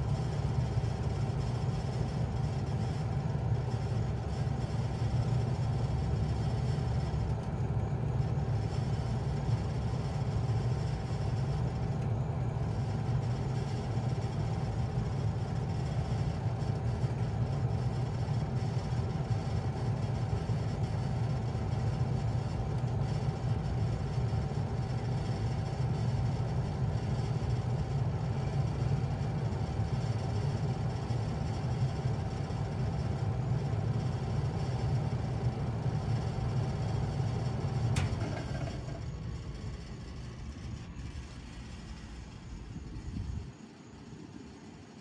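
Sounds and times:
faint steady whine: 0.0 - 45.0
heat pump humming: 0.0 - 45.0
sharp click of unit shutting off: 37.9 - 39.2.

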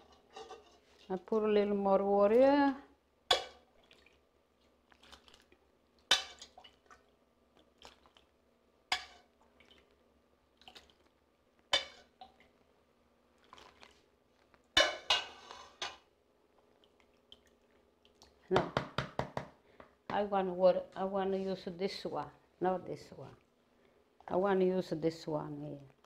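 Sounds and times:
metal ladle clinking on pot: 3.3 - 3.6, 14.8 - 16.0
faint water splashing: 3.3 - 18.6.

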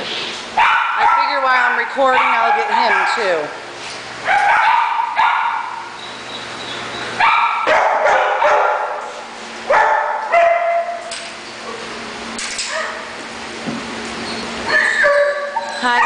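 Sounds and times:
dog barking: 0.6 - 1.4, 2.1 - 3.5, 4.3 - 5.9, 7.2 - 11.0, 12.7 - 13.1.

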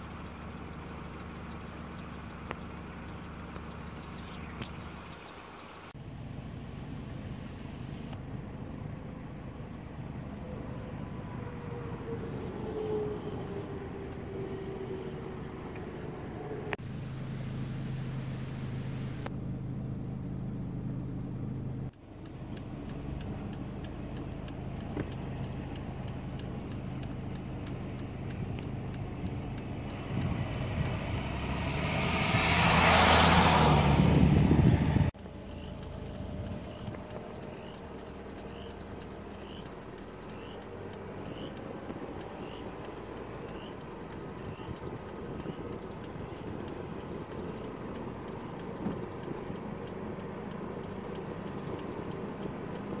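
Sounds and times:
road noise: 0.0 - 53.0
vehicle engine hum: 0.0 - 53.0
faint high chirp: 11.9 - 15.6.

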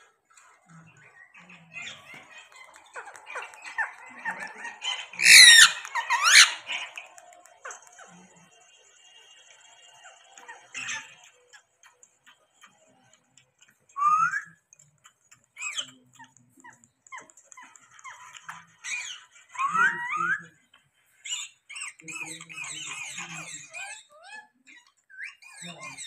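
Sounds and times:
parakeet clicks and chatter: 0.0 - 26.0
wavering chirps: 1.3 - 7.3.

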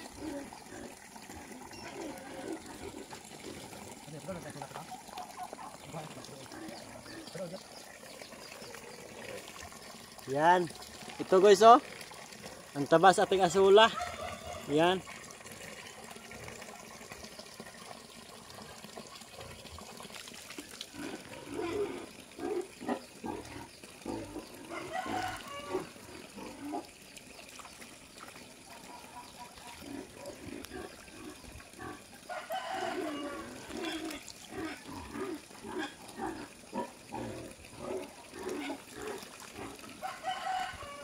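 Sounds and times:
farm animals calling: 0.0 - 9.5, 13.1 - 15.2, 20.9 - 27.0, 28.7 - 41.0
pond water splashing: 0.0 - 41.0.

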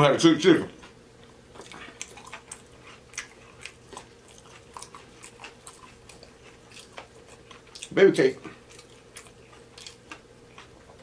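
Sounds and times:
faint steady hum: 0.0 - 11.0
chewing crunchy food: 0.8 - 11.0.

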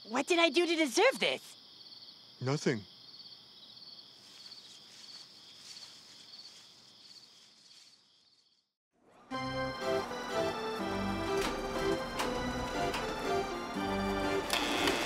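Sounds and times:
crickets chirping: 0.0 - 8.7
music: 9.0 - 15.0.

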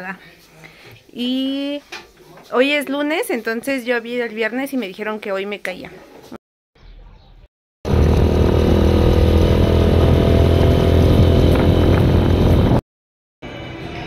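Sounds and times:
motorcycle engine running: 7.9 - 12.8.

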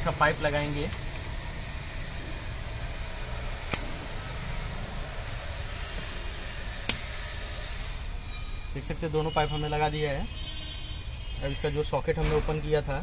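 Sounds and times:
steady background hum: 0.0 - 13.0
fuel pipe connector click: 3.7 - 3.9, 6.9 - 7.1.

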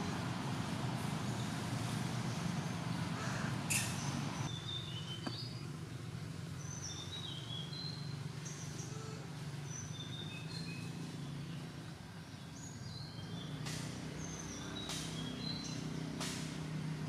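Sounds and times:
small birds chirping: 0.0 - 17.0
sharp rustle or snap: 13.6 - 14.1, 14.8 - 15.2, 16.1 - 16.8.

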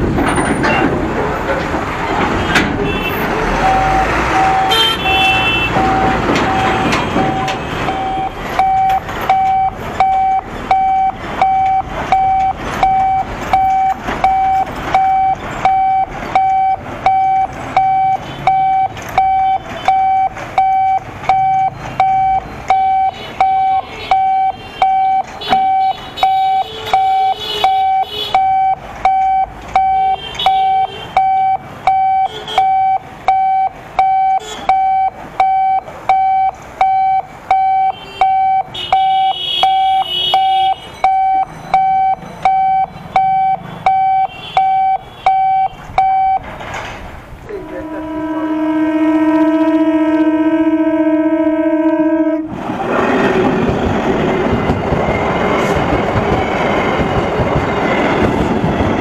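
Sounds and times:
truck engines running: 0.0 - 59.0
level crossing warning beeps: 3.5 - 46.5.

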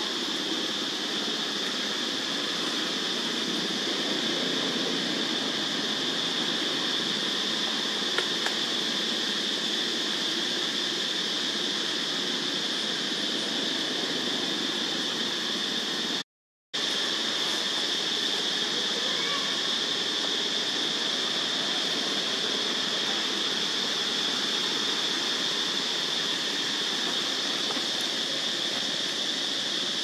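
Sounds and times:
even forest hiss: 0.0 - 16.2, 16.8 - 30.0.

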